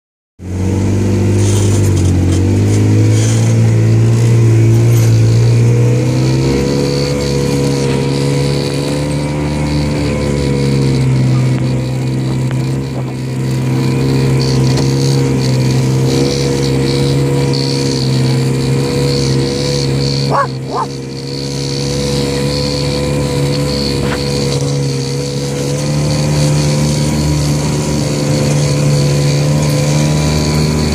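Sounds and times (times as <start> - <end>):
engine idling: 0.4 - 30.9
short high yelps: 20.3 - 21.0.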